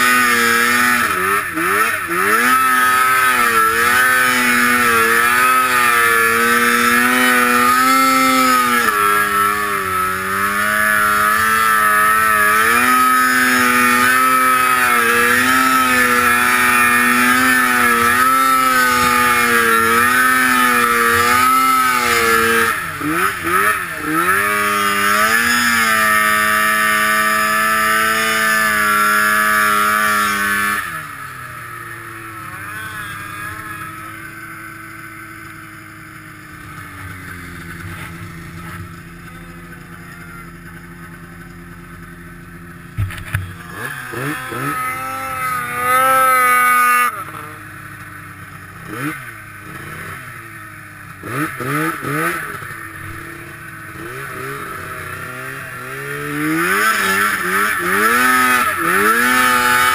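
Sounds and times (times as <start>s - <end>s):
snowmobile engine running hard: 0.0s - 59.9s.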